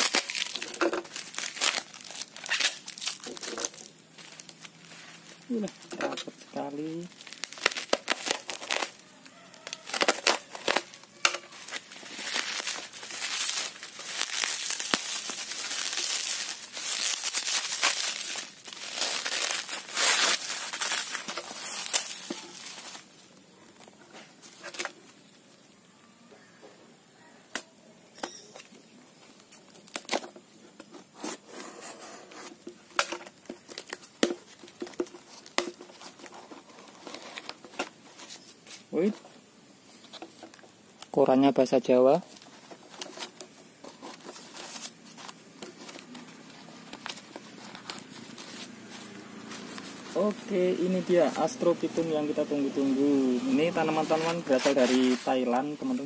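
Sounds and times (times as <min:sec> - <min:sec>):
bubble wrap crinkling and tearing: 0:00.0 - 0:25.8, 0:28.5 - 0:30.4, 0:32.3 - 0:39.1, 0:42.1 - 0:56.0
cardboard box rustling: 0:11.5 - 0:23.0, 0:42.4 - 0:52.2, 0:53.0 - 0:55.7.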